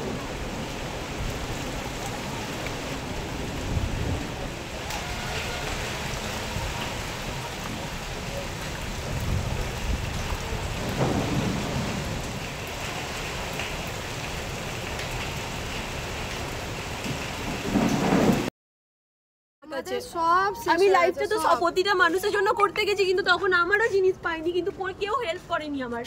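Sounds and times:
gusting wind: 0:00.0 - 0:18.5
heavy rain: 0:00.0 - 0:18.5
thunder rumbling: 0:00.0 - 0:18.5.

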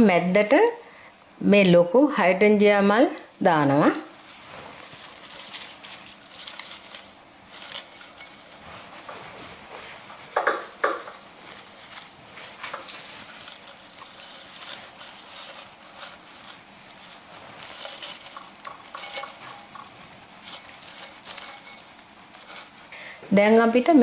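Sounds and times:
rustling of flowers and leaves: 0:03.7 - 0:23.0
sharp knocks: 0:10.4 - 0:11.2.

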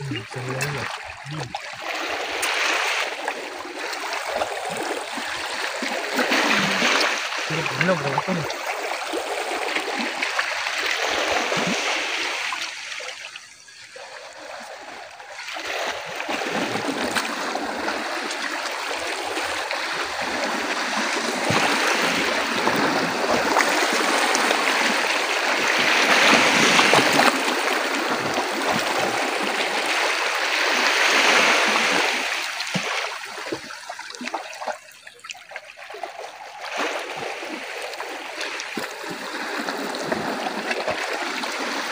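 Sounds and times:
waves splashing against rocks: 0:00.0 - 0:41.9.

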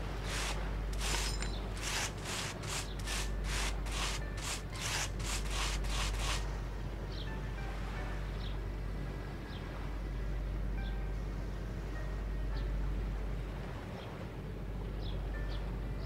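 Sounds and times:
cloth scrubbing floor: 0:00.0 - 0:06.4.

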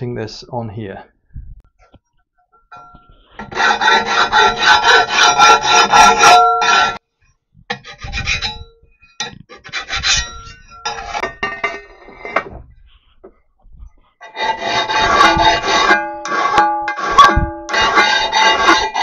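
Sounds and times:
hand file rasping on steel plate: 0:03.3 - 0:07.0, 0:07.7 - 0:12.4, 0:14.2 - 0:19.0.

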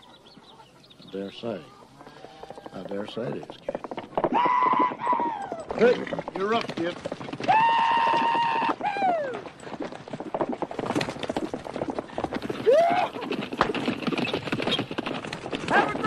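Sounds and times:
horse hooves galloping: 0:00.0 - 0:16.0.

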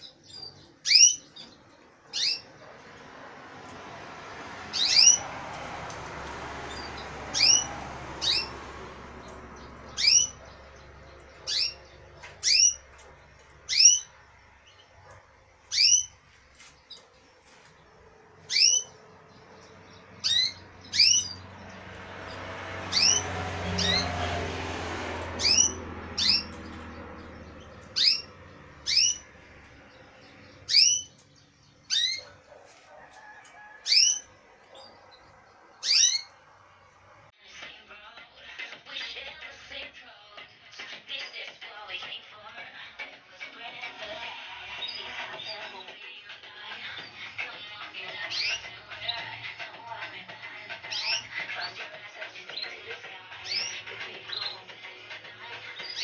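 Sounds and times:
finches chirping: 0:00.0 - 0:03.1, 0:04.7 - 0:05.3, 0:06.7 - 0:24.2, 0:25.2 - 0:37.0, 0:50.8 - 0:51.8
soft rushing noise: 0:02.5 - 0:37.3.

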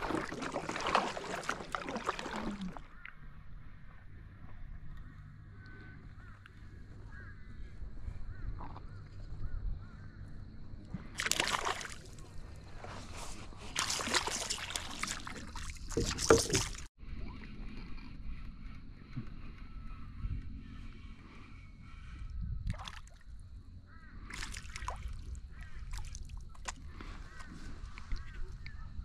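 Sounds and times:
paddle strokes splashing water: 0:00.0 - 0:03.0, 0:11.2 - 0:16.9, 0:24.3 - 0:28.7
water lapping: 0:00.0 - 0:03.1, 0:11.2 - 0:18.2.

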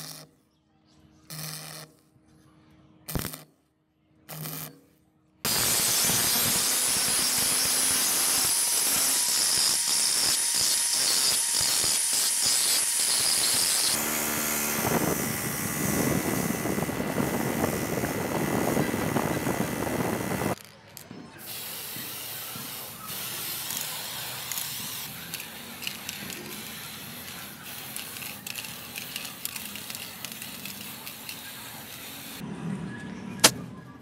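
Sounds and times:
stick welding crackling: 0:03.1 - 0:03.5, 0:04.3 - 0:04.8, 0:05.5 - 0:32.4
angle grinder grinding: 0:05.5 - 0:21.0, 0:22.9 - 0:32.4
wire brush wheel scrubbing: 0:22.9 - 0:32.4.

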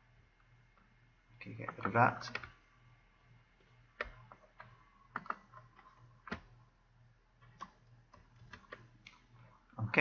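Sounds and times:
computer mouse and keyboard clicks: 0:04.0 - 0:06.6, 0:07.4 - 0:09.3.

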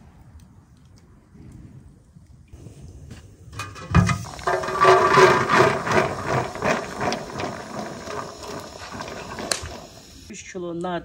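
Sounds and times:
seeds rattling into metal pot: 0:03.6 - 0:10.3.

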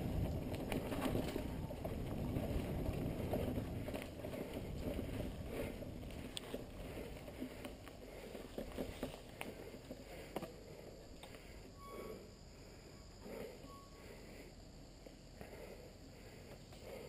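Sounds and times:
wind on microphone: 0:00.0 - 0:06.8
bike clicks and rattles: 0:00.0 - 0:11.6
bicycle tyres rumbling on dirt: 0:00.0 - 0:12.2.

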